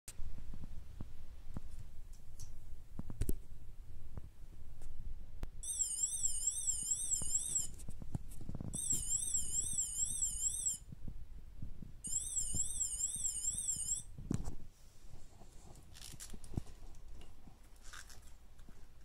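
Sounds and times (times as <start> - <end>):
warbling toy siren: 12.1 - 14.0.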